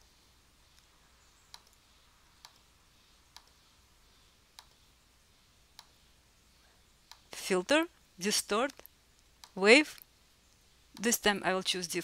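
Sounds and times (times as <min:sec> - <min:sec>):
quiet room hum: 0:00.0 - 0:12.0
faint computer mouse clicks: 0:01.5 - 0:01.8, 0:02.4 - 0:02.7, 0:03.3 - 0:03.6, 0:04.6 - 0:04.8, 0:05.8 - 0:06.0, 0:07.0 - 0:07.3, 0:08.7 - 0:11.1.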